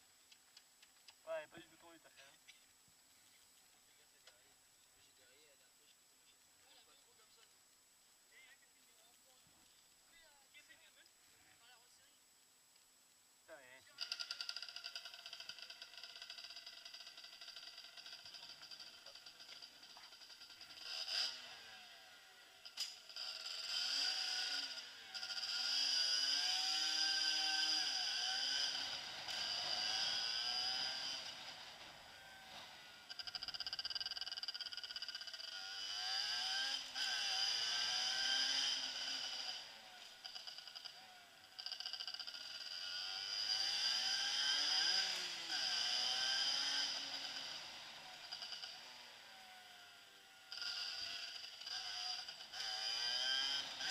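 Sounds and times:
motorcycle engine revving: 0:13.9 - 0:53.9.

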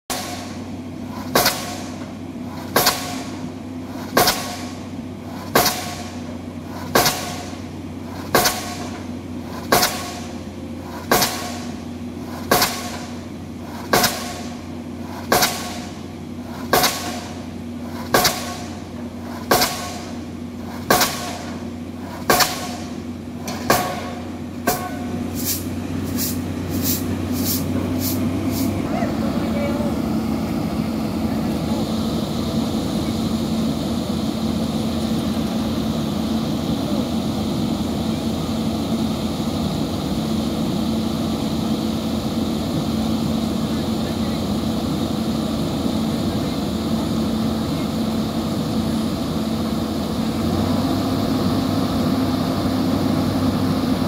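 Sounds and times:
steady engine hum: 0:00.0 - 0:54.0
pile driver hammer blows: 0:00.1 - 0:28.8.

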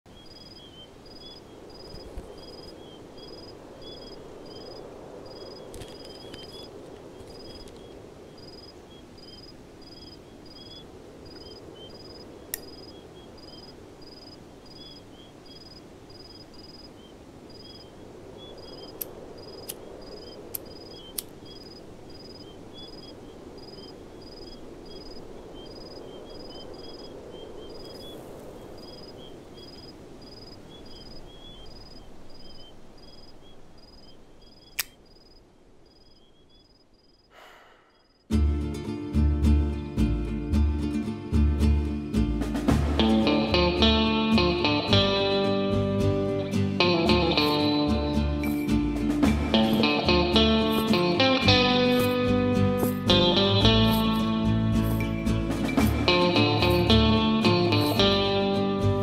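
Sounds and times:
crickets chirping: 0:00.1 - 0:59.0
sharp click: 0:34.7 - 0:35.0.

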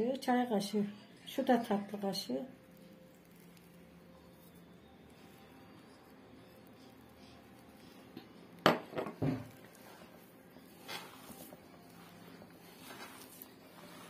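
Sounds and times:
hand kneading bulgur in bowl: 0:01.5 - 0:08.2, 0:09.4 - 0:14.0.

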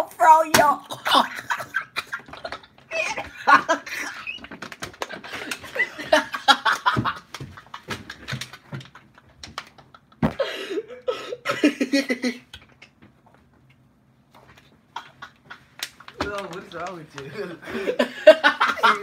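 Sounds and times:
people laughing: 0:01.1 - 0:04.4, 0:05.1 - 0:12.4, 0:14.9 - 0:19.0
plastic bottles crinkling: 0:02.2 - 0:05.9.

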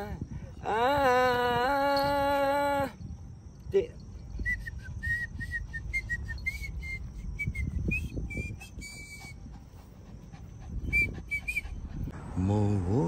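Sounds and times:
wind rumble on microphone: 0:00.0 - 0:13.0
man whistling a tune: 0:04.4 - 0:09.4, 0:10.9 - 0:11.8.

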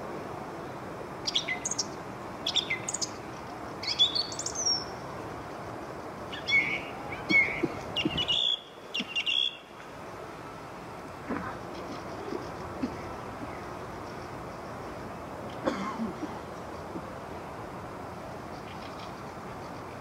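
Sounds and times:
low background noise: 0:00.0 - 0:20.0
nightingale singing: 0:01.2 - 0:05.0, 0:06.2 - 0:09.8.

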